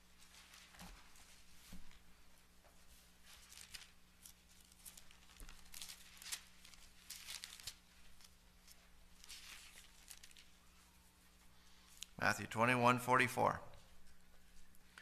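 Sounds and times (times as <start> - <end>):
pages being turned: 3.2 - 10.8.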